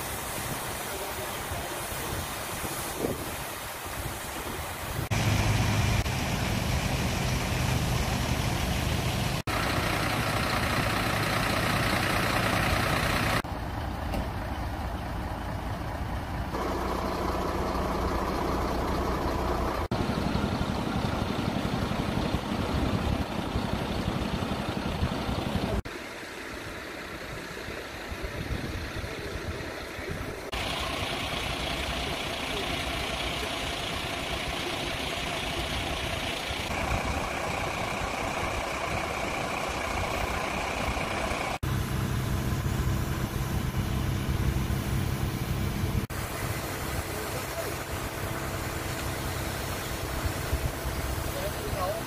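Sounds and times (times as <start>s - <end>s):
hiss of noise: 0.0s - 13.4s, 25.8s - 52.0s
fire engines idling: 0.0s - 52.0s.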